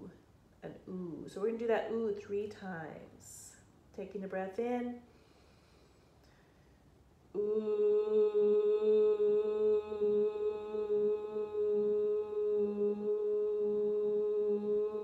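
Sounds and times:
breath in: 0:05.1 - 0:06.8.

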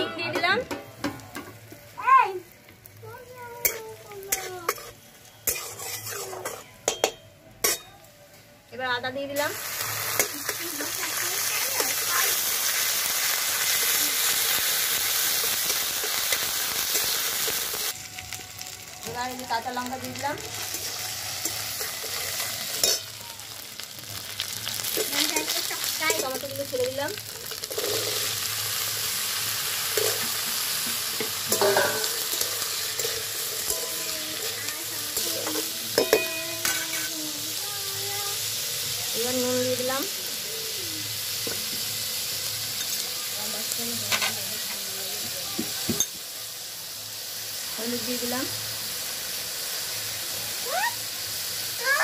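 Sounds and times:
spices sizzling in hot oil: 0:00.0 - 0:52.0
metal spatula scraping pan: 0:03.6 - 0:07.9, 0:30.0 - 0:37.2.

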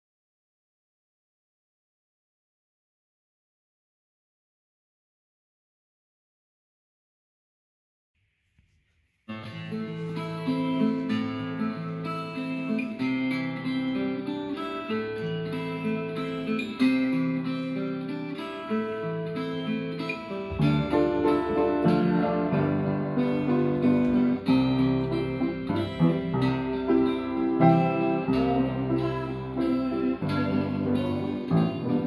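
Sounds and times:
acoustic guitar strumming: 0:09.3 - 0:32.0
upright piano playing: 0:20.5 - 0:32.0.

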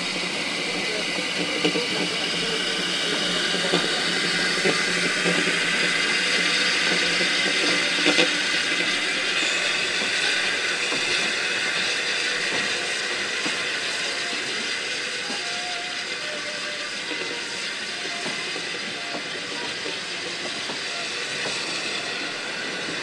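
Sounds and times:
steam locomotive hissing: 0:00.0 - 0:23.0.

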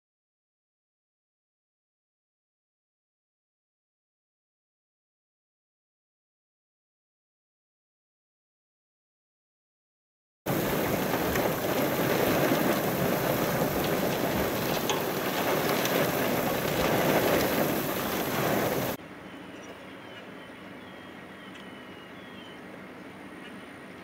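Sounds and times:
loud outdoor rushing noise: 0:10.5 - 0:19.0.

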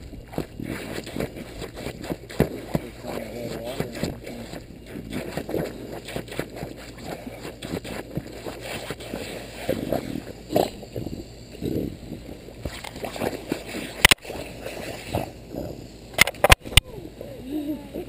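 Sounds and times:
puppy biting and snuffling: 0:00.2 - 0:12.0.

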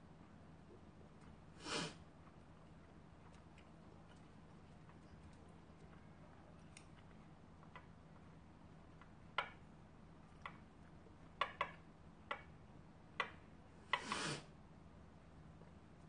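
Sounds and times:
chopsticks scraping: 0:13.9 - 0:14.4.

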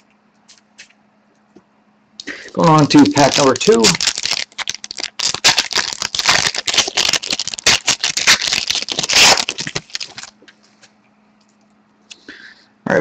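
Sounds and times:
foil wrapper tearing and crinkling: 0:02.2 - 0:10.4.

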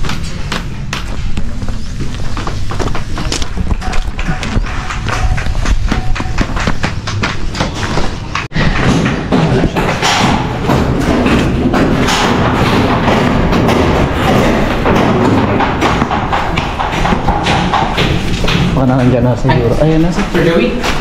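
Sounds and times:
footsteps on concrete: 0:00.0 - 0:08.9
knocks: 0:02.8 - 0:19.3.

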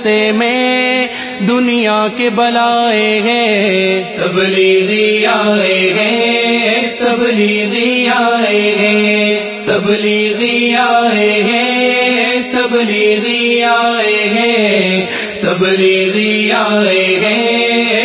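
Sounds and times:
chanted vocal melody: 0:00.0 - 0:18.0.

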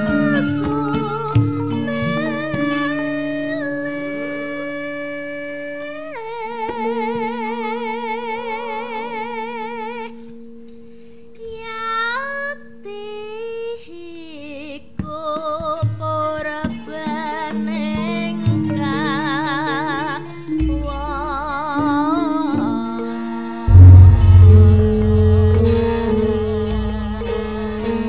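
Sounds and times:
sustained instrument tones: 0:23.6 - 0:28.0
struck percussion strokes: 0:23.7 - 0:27.6.

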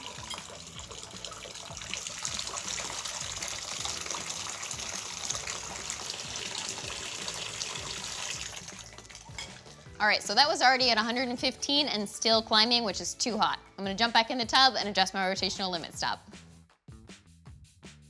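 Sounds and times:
water pouring into a glass: 0:00.0 - 0:09.8.

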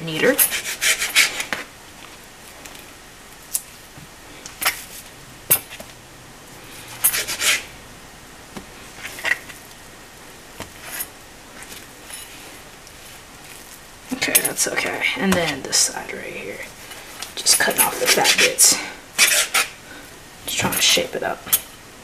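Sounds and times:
knife scraping cutting board: 0:00.4 - 0:01.7, 0:07.0 - 0:07.7, 0:19.2 - 0:19.8.

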